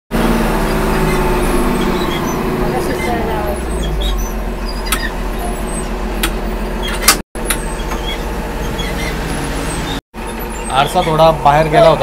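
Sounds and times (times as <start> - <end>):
bus diesel engine hum: 0.1 - 12.0
sharp knocks and rattles: 3.0 - 9.5.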